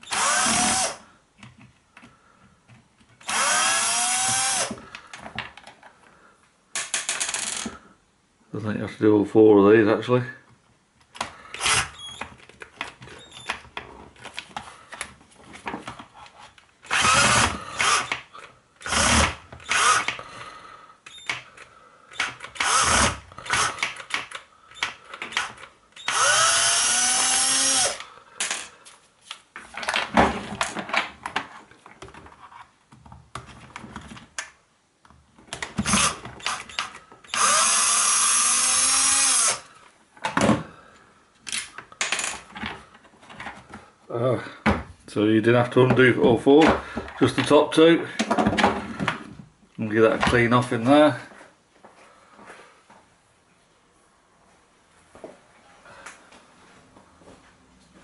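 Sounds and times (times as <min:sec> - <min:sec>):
cordless drill whirring: 0:00.0 - 0:01.0, 0:03.2 - 0:04.8, 0:11.6 - 0:12.2, 0:16.9 - 0:18.2, 0:18.8 - 0:20.2, 0:22.2 - 0:23.8, 0:25.3 - 0:28.7, 0:35.8 - 0:39.7.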